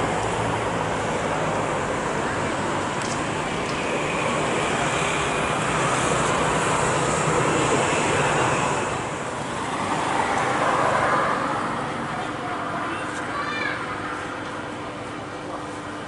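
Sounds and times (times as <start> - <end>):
jet engines rushing: 0.0 - 12.7.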